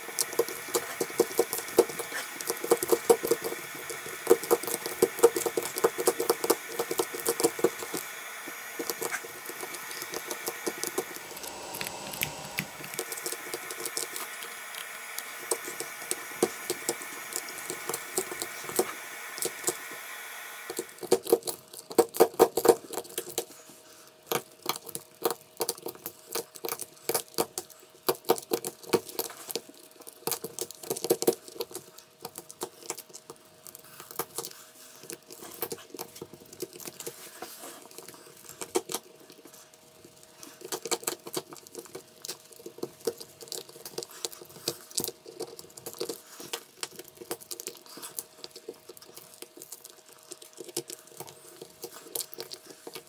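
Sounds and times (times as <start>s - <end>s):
machine whirring and hissing: 0.0s - 21.4s.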